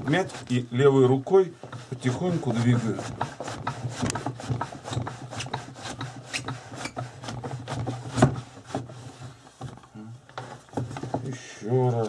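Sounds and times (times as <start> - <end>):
wooden knocks: 1.6 - 11.4
scraping strokes on skin: 1.7 - 9.6.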